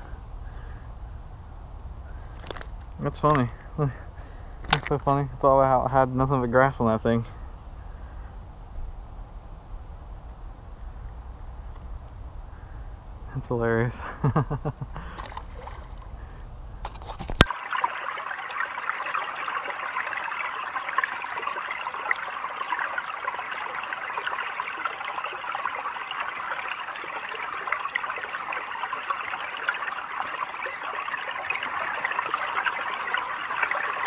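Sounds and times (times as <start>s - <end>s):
trickling noise: 2.2s - 5.4s, 13.4s - 34.0s.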